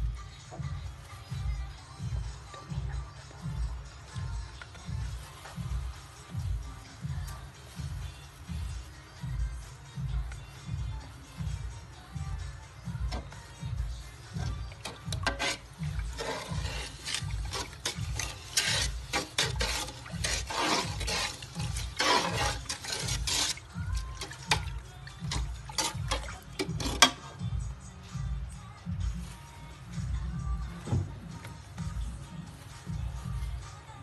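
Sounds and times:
music with steady beat: 0.0 - 34.0
water pouring and splashing: 14.3 - 27.2.

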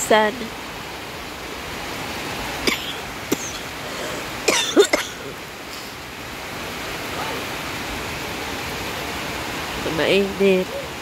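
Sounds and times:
heavy rain falling: 0.0 - 11.0
person coughing: 4.5 - 5.3.

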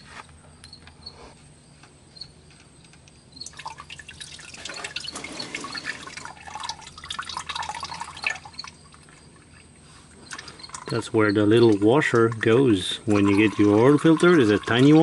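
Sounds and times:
oil dripping and spattering: 3.4 - 15.0.

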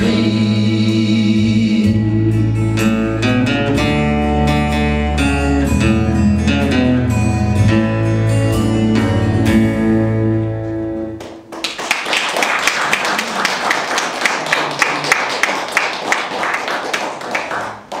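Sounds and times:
audience applause: 11.2 - 18.0.

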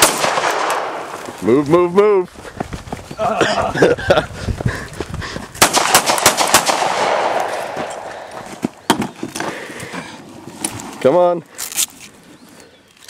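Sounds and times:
gunshots: 0.0 - 1.2, 5.6 - 8.3.

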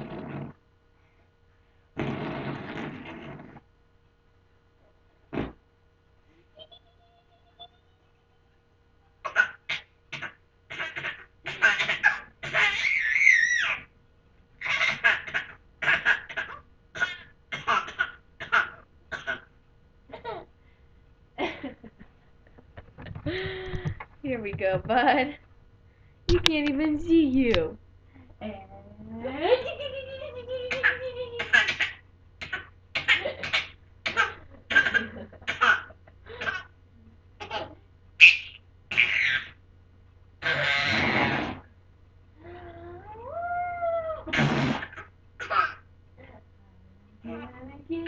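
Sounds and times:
baby giggling: 6.6 - 8.0, 14.6 - 16.6, 29.5 - 36.7.

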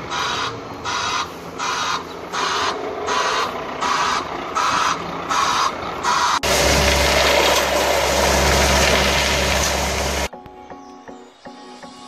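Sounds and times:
low truck hum: 0.0 - 10.3
concrete mixer drum swishing: 6.4 - 10.3.

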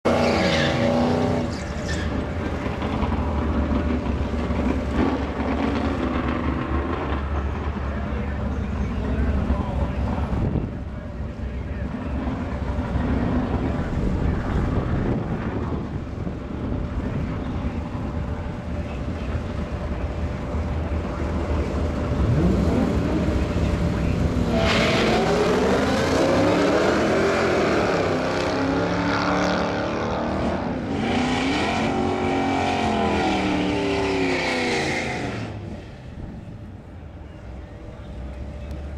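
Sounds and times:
cars accelerating hard: 0.0 - 8.3, 21.0 - 36.1
car engines idling: 1.2 - 29.0, 31.9 - 38.9.

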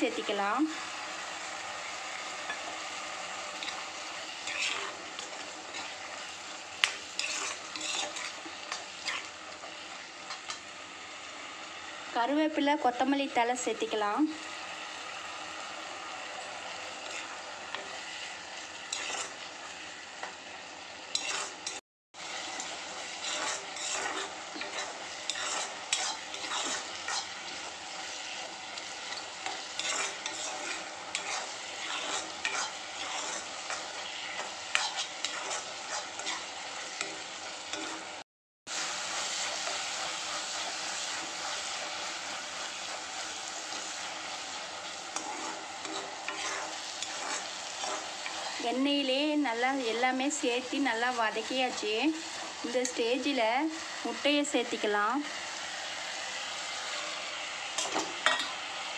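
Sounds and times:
masala sizzling in oil: 0.0 - 58.9
metal spoon clinking on pan: 57.8 - 58.6.

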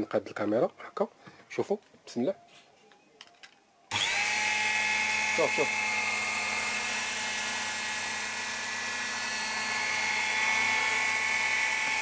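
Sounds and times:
blade cutting fabric: 3.9 - 12.0
electric cloth cutter motor whine: 3.9 - 12.0.

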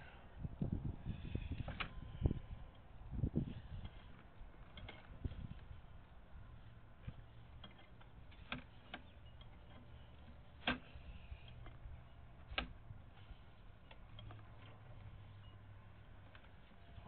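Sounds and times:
low steady hum: 0.0 - 17.0
cable clicks and ticks: 7.0 - 15.2.

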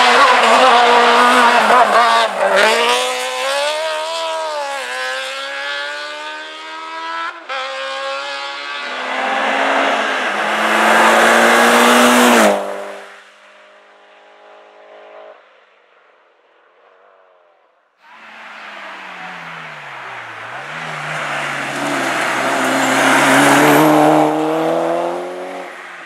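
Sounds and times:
racing car revving: 0.0 - 13.2, 18.0 - 26.0
turbocharged car engine at full throttle: 18.1 - 26.0.

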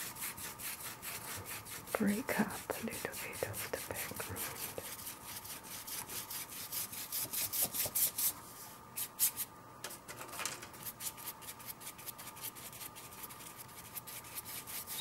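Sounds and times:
paintbrush scrubbing on paper: 0.0 - 8.4, 10.8 - 15.0.

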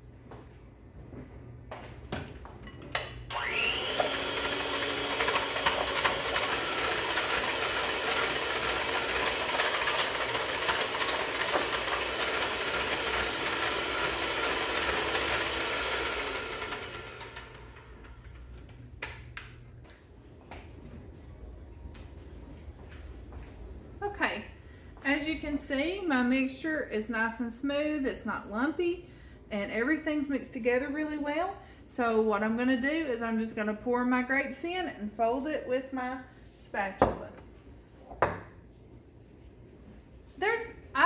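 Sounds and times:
electric hand mixer whirring: 3.3 - 18.3.

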